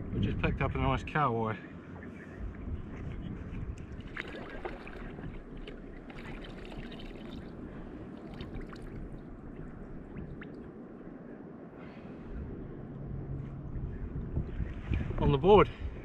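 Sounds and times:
water lapping against kayak hull: 3.7s - 11.1s.

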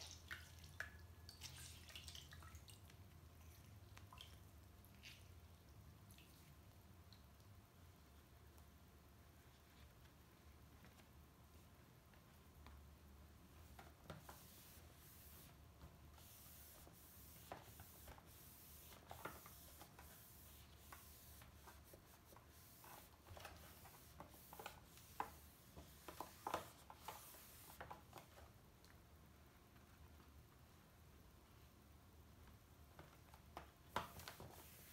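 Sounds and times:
cloth rubbing on screen: 16.2s - 27.8s.

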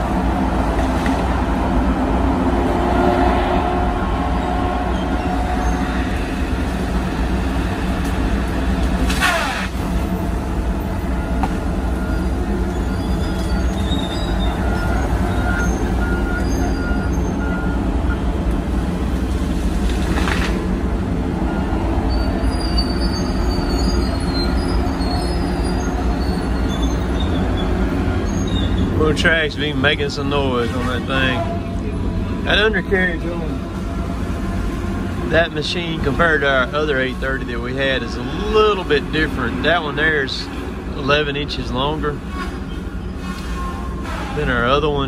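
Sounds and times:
diesel engines droning: 0.0s - 45.0s
tracks squealing and squeaking: 3.2s - 6.6s, 9.0s - 9.9s, 11.1s - 17.8s, 21.6s - 31.8s, 41.2s - 45.0s.

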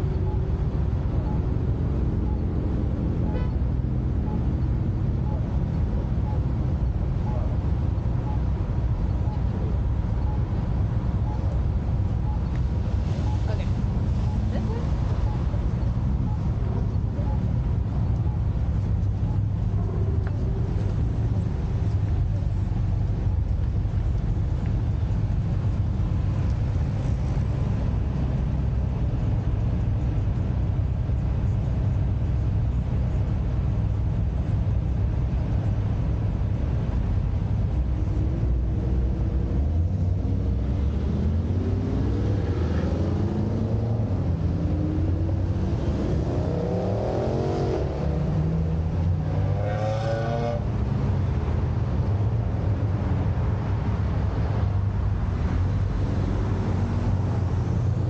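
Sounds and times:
car engines idling: 0.0s - 49.8s, 50.5s - 58.0s
car accelerating away: 38.1s - 50.9s.

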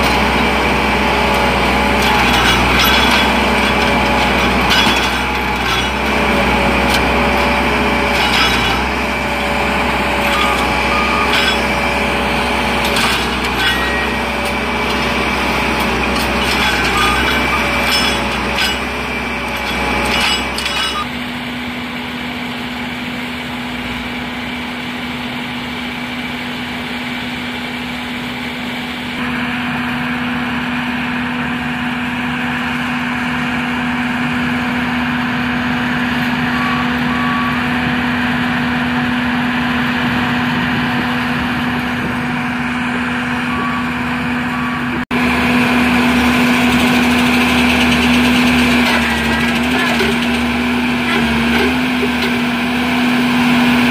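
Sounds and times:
machine engine whine: 0.0s - 53.9s
metallic knocks and clacks: 1.3s - 21.1s, 46.5s - 52.4s.

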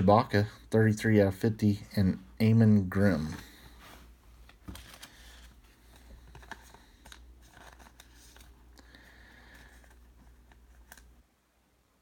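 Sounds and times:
trading cards rustling and clicking: 4.4s - 11.2s.

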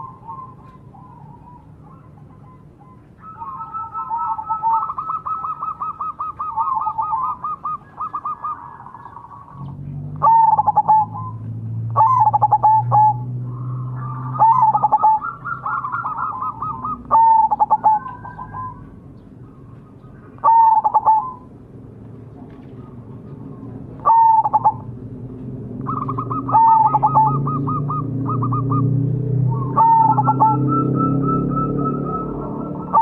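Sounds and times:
dove cooing: 0.0s - 21.6s, 22.4s - 25.0s, 25.6s - 33.0s.

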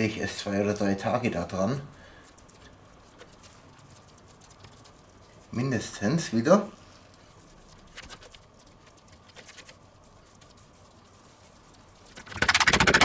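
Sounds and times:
soft handling noise: 1.0s - 12.2s
rattle of rapid clicks: 12.1s - 13.0s.

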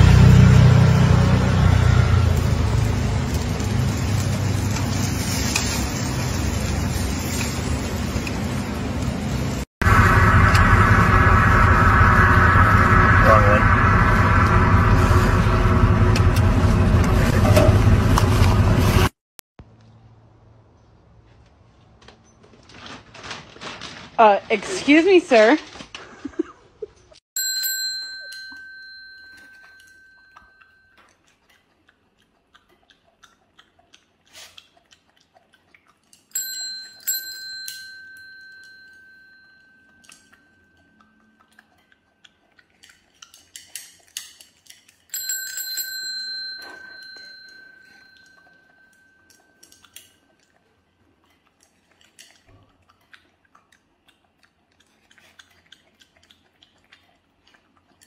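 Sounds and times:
desk service bell ringing: 27.4s - 31.0s, 36.4s - 40.8s, 45.2s - 49.4s.

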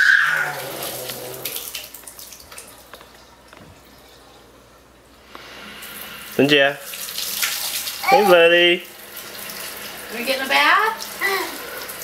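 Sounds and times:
child squealing: 0.0s - 0.8s, 8.0s - 8.5s, 11.2s - 11.6s
faucet water splashing: 0.0s - 4.5s, 5.4s - 12.0s.

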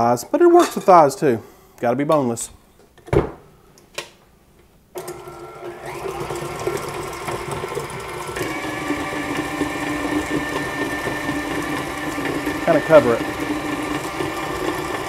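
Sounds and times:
stand mixer motor whirring: 5.0s - 15.0s.

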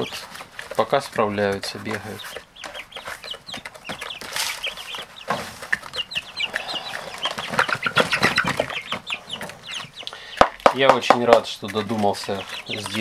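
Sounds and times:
chicks peeping: 0.0s - 13.0s
feeder knocking and rustling: 7.2s - 13.0s.

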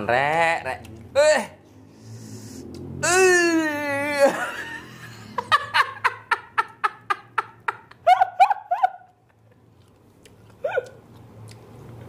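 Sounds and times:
person laughing: 3.2s - 9.4s.

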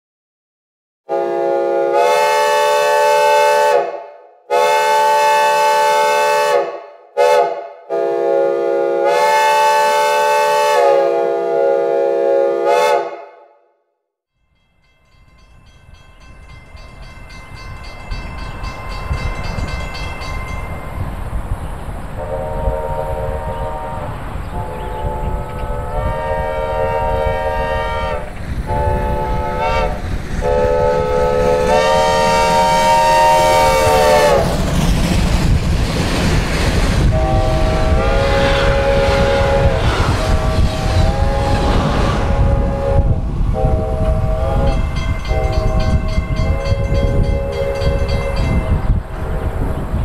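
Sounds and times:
steam locomotive chime whistle: 1.1s - 13.4s, 14.5s - 21.1s, 22.2s - 34.6s, 37.1s - 48.9s
approaching train rumble: 14.6s - 50.0s.

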